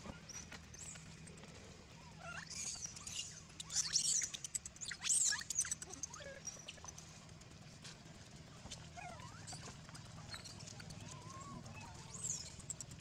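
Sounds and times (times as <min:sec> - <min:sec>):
monkey squealing: 0:02.1 - 0:07.0, 0:10.3 - 0:12.6.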